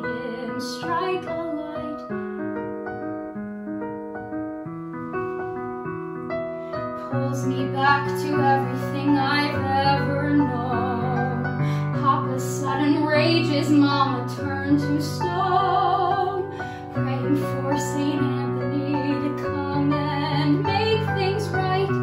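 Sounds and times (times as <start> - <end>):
woman singing: 0.0 - 2.2, 7.0 - 22.0
piano accompaniment: 0.0 - 22.0.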